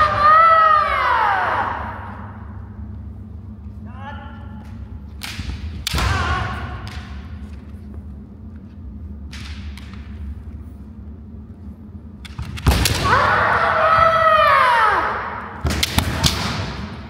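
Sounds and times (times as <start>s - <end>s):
person shouting: 13.0s - 15.4s.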